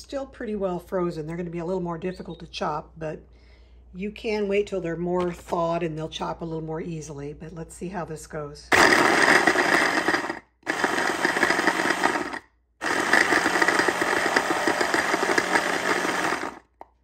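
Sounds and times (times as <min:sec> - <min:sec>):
blender chopping frozen fruit: 0:08.7 - 0:16.9.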